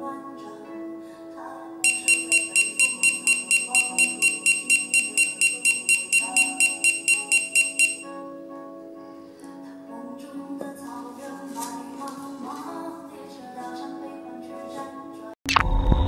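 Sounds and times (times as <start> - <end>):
background music: 0.0 - 15.4
rapid high-pitched electronic beeping: 1.9 - 8.0.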